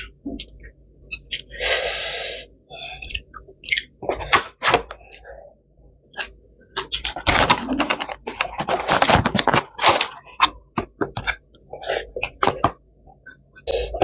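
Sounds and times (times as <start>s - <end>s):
crisp chewing: 3.0s - 5.2s, 6.1s - 13.4s.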